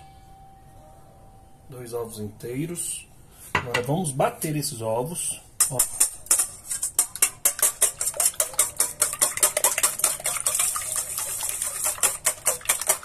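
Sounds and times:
whisk clicking against metal bowl: 5.6 - 13.0.

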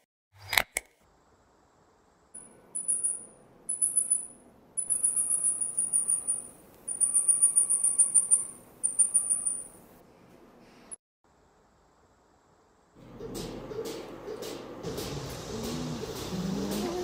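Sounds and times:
high-pitched animal chirping trills: 2.8 - 9.8.

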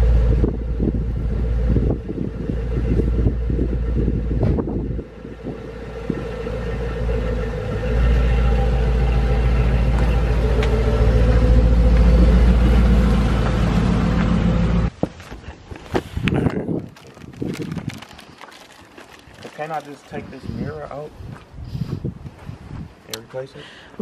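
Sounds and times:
car engine running: 0.0 - 14.9.

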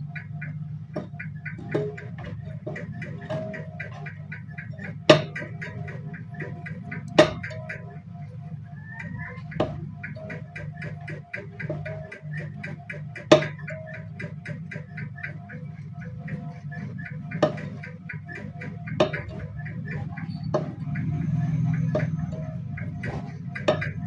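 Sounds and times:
even ticking beat: 0.0 - 24.0.

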